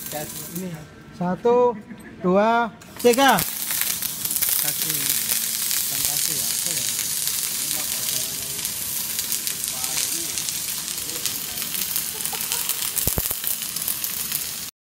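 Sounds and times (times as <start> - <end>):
welding arc crackling: 0.0 - 0.8, 2.8 - 14.7.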